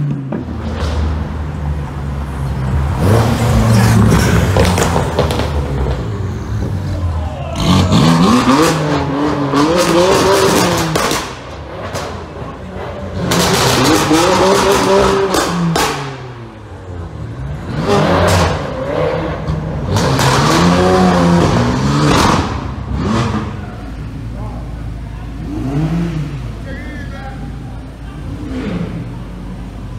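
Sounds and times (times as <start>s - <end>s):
sports car engines revving: 0.0s - 29.9s.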